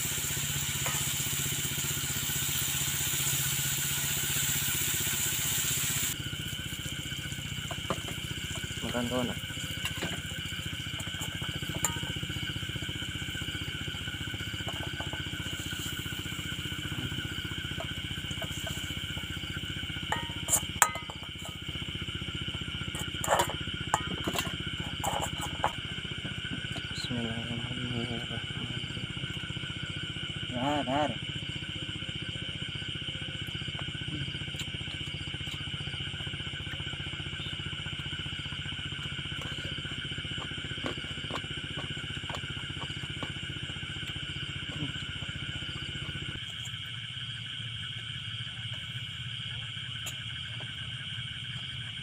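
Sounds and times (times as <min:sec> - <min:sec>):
high-pitched whine: 0:00.0 - 0:52.0
night insects chorus: 0:00.0 - 0:52.0
small engine running: 0:00.0 - 0:52.0
metal spoon clinking on wok: 0:20.1 - 0:21.1.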